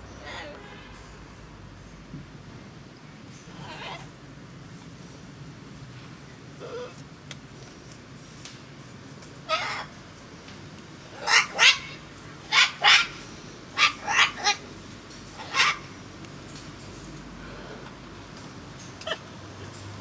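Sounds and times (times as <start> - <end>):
cockatoos squawking: 11.1 - 14.7, 15.4 - 16.0.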